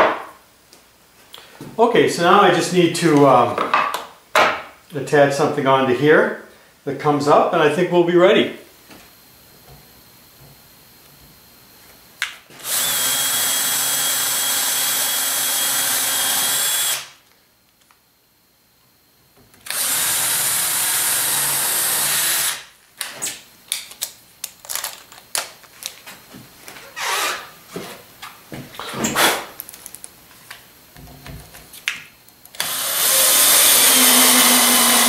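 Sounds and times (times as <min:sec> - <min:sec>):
cordless drill boring into wood: 0:12.6 - 0:17.1, 0:19.6 - 0:22.6, 0:32.6 - 0:35.0.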